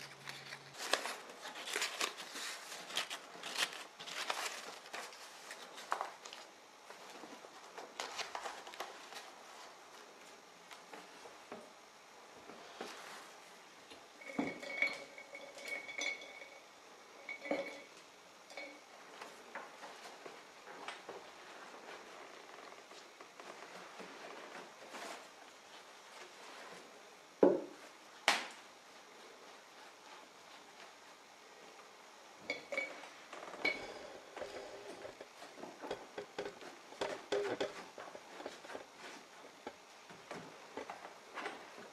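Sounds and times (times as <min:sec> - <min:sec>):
small hard objects clinking: 0:14.2 - 0:18.8.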